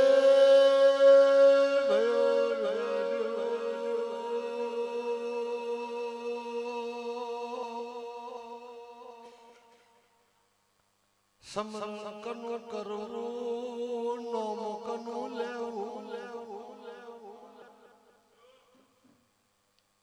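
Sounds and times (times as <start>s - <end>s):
person chanting long note: 0.0s - 9.6s.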